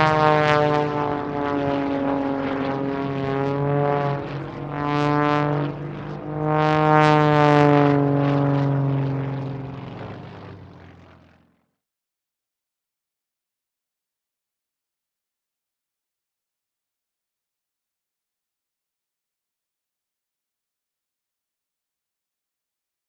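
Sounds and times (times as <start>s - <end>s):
propeller plane engine passing by: 0.0s - 11.8s.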